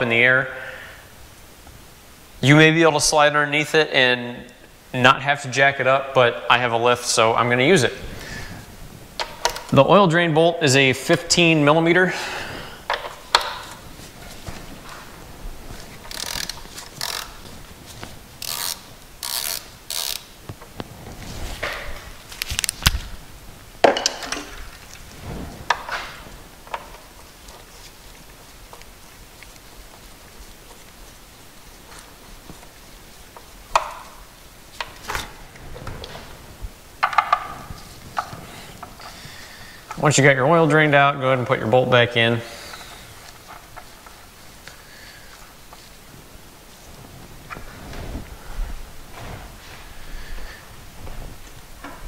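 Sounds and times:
hand ratchet clicking: 16.0 - 17.4, 18.4 - 20.3
ratchet socket clinking on metal: 16.1 - 17.3.

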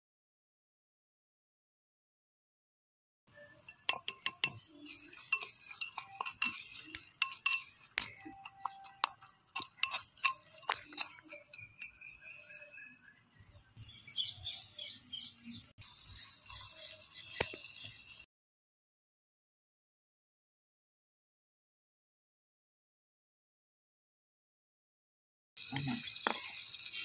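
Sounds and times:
spoon scraping clay pot: 3.4 - 12.9
steady high hiss: 25.6 - 27.0.

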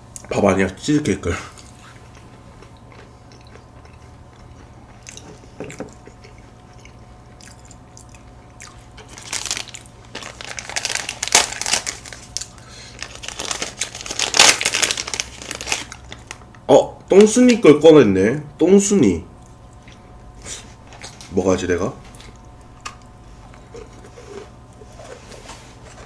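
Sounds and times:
chewing soft cookie: 1.5 - 10.3, 22.0 - 26.0
plastic bag crinkling: 9.0 - 16.4.

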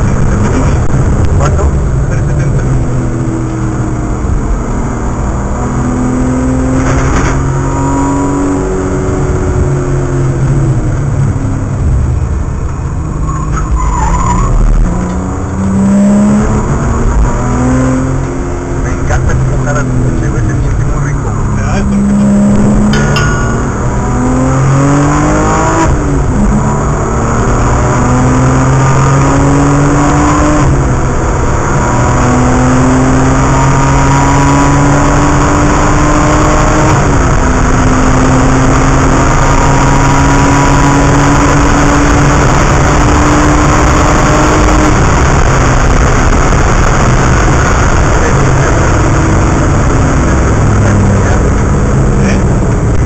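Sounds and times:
car engine accelerating: 0.0 - 53.0
road and wind noise: 0.0 - 53.0.

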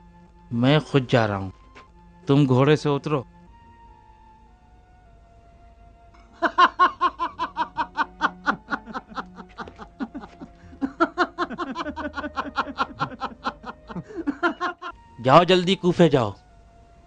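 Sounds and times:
faint background music: 0.0 - 17.0
men laughing: 6.3 - 15.0.

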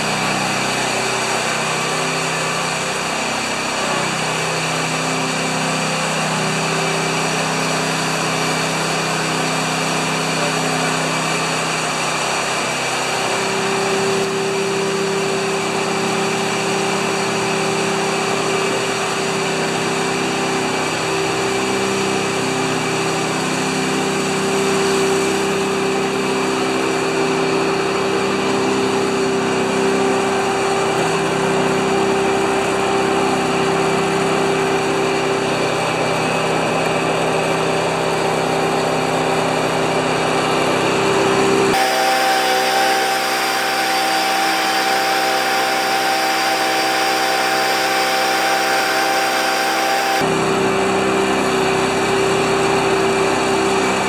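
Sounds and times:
lawn tractor engine running: 0.0 - 54.0
steady higher-pitched tone: 41.8 - 50.2.

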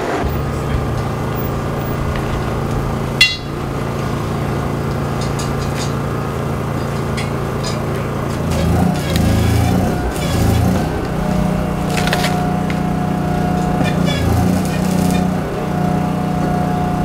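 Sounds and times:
steady low hum: 0.2 - 17.0
sharp metallic clink: 3.2 - 4.0.

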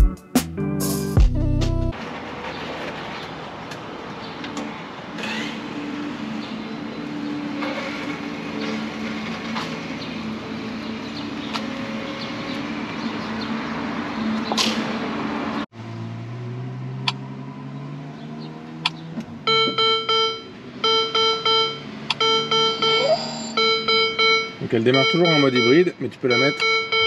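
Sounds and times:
car warning chime beeping: 19.5 - 27.0.

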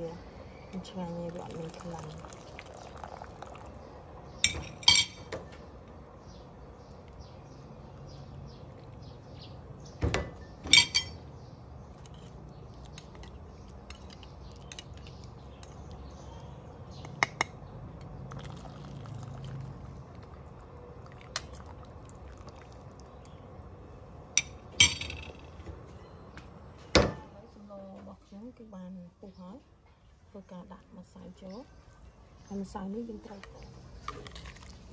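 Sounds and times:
water boiling in a pot: 0.8 - 4.6, 18.2 - 23.4
metal ladle clinking on pot: 10.7 - 11.2.

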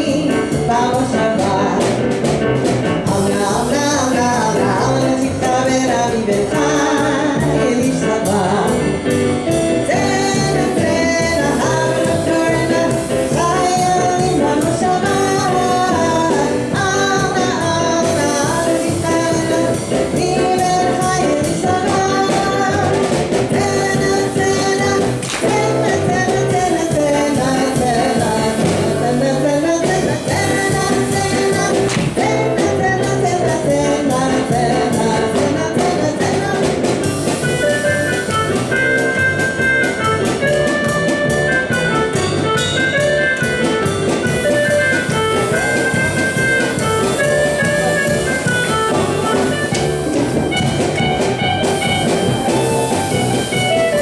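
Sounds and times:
woman singing into microphone: 0.0 - 2.2, 3.0 - 9.0, 9.7 - 37.2, 44.3 - 51.0
electric keyboard dance music: 0.0 - 54.0.

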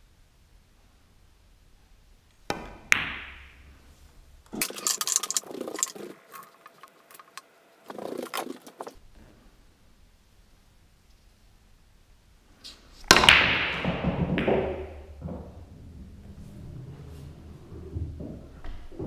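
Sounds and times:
cue tip striking ball: 2.5 - 3.7, 13.1 - 15.7
pool balls clacking: 2.5 - 3.8, 4.5 - 9.0, 13.0 - 16.1
clattering: 4.5 - 9.0.

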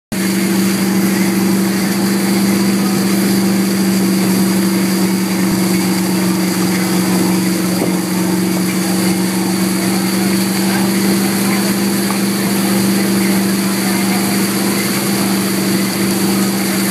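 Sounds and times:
boat engine droning: 0.1 - 16.9
churning wake water: 0.1 - 16.9.

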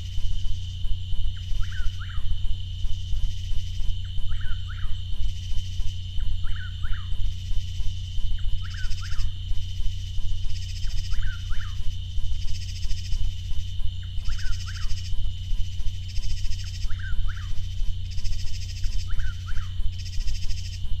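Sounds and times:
steady low hum: 0.0 - 21.0
bird calling whistled phrase: 1.6 - 2.3, 4.3 - 5.0, 6.4 - 7.2, 8.4 - 9.4, 11.1 - 11.9, 16.8 - 17.6, 19.0 - 19.8.

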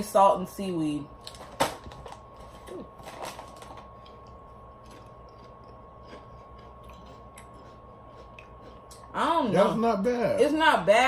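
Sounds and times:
steady hum with high tone: 0.0 - 11.0
chip bag crinkling: 1.2 - 5.8.

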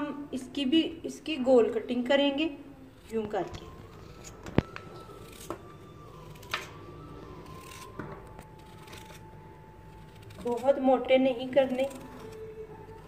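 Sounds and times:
knife slicing raw potato: 3.0 - 6.8, 7.4 - 13.0.

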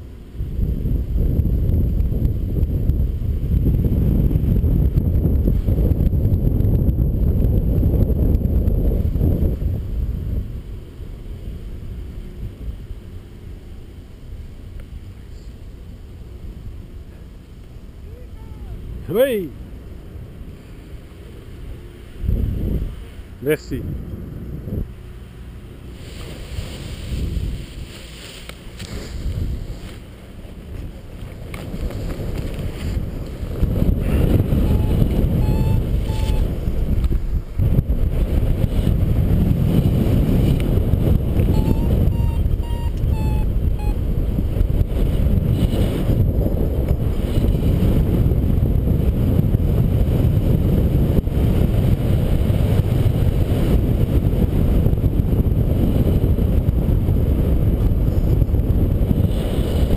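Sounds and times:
wind buffeting microphone: 0.0 - 59.9
short high beeps: 34.6 - 36.5, 41.5 - 44.0.

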